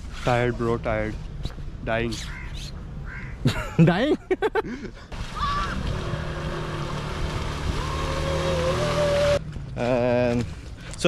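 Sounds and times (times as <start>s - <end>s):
rushing wind and road noise: 0.0s - 3.5s
vehicle engine drone: 5.2s - 11.0s.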